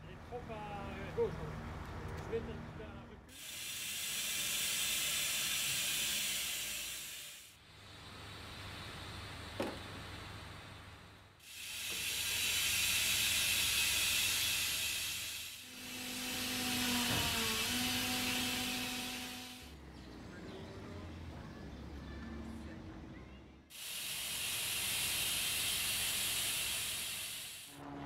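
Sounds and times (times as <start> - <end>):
steady hiss: 3.3 - 10.8, 11.4 - 15.7, 23.7 - 27.7
low hum: 27.7 - 28.0.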